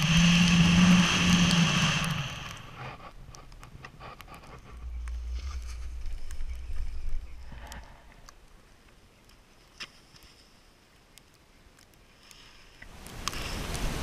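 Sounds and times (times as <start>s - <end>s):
skis sliding on snow: 0.0s - 3.2s, 3.8s - 8.1s, 12.2s - 14.0s.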